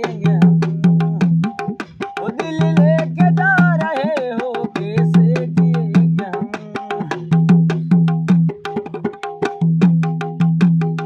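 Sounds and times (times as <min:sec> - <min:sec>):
man singing wordless line: 0:00.0 - 0:07.5
barrel drum played by hand: 0:00.0 - 0:11.0.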